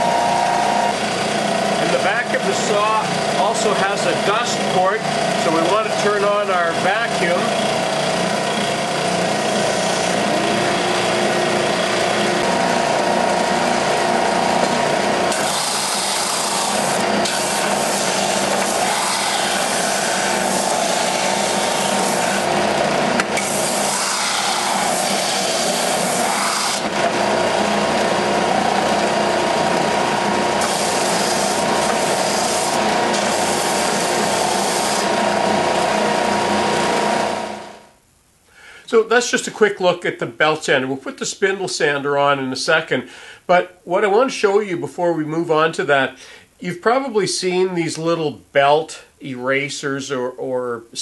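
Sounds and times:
belt sander motor whine: 0.0 - 37.8
wood rasping on sanding belt: 15.3 - 22.5, 23.4 - 26.8, 30.6 - 35.1.

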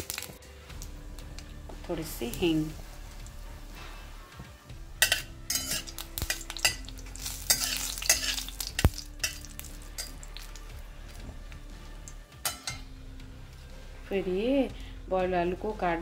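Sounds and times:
oil sizzling: 0.0 - 14.0
metal spatula scraping a pan: 5.0 - 10.6.

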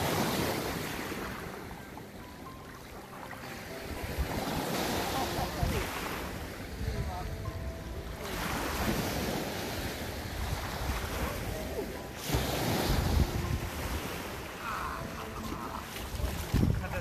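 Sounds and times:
small waves washing ashore: 0.0 - 17.0
wind buffeting microphone: 3.9 - 17.0.

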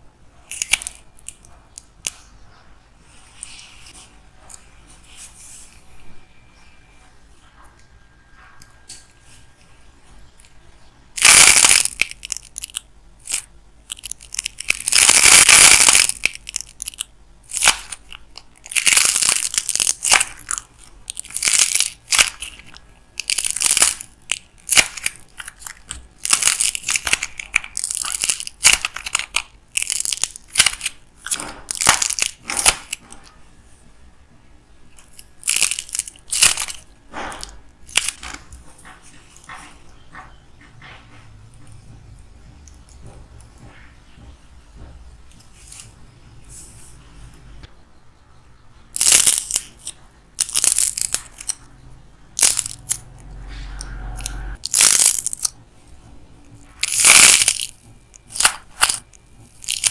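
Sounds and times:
clay crackling and crunching: 0.4 - 2.2, 11.1 - 33.3, 34.9 - 38.6, 48.9 - 51.6, 52.3 - 53.2, 54.2 - 55.6, 56.6 - 59.9.

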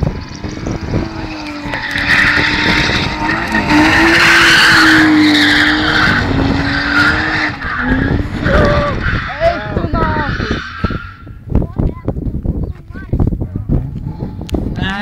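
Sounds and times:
car engine at high revs: 0.0 - 11.6, 13.6 - 15.0
tyres squealing on tarmac: 1.6 - 11.5.

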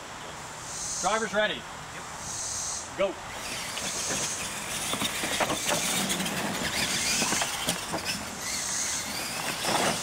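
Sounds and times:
rc truck motors running: 3.2 - 10.0
trucks landing knocks: 3.5 - 10.0.

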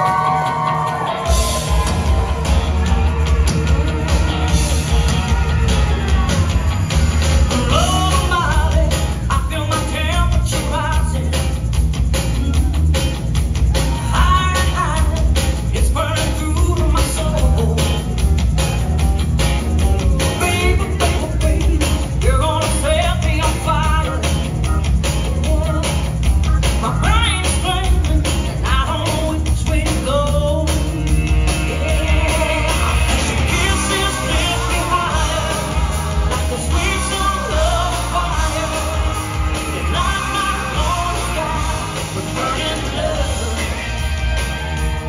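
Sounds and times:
pop-rock song over loudspeakers: 0.0 - 45.0.

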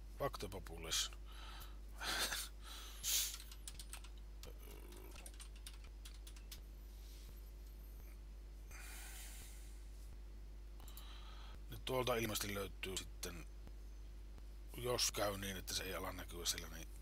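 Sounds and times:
faint steady hum: 0.0 - 17.0
keyboard typing: 3.3 - 6.6.

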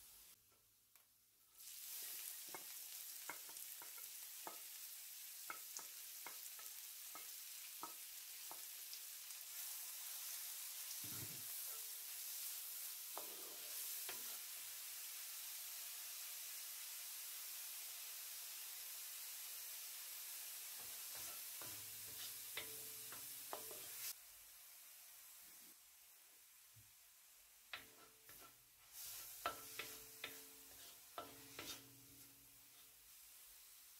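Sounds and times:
garlic and onion sizzling in oil: 0.0 - 33.9
wooden spoon stirring: 27.8 - 32.2.

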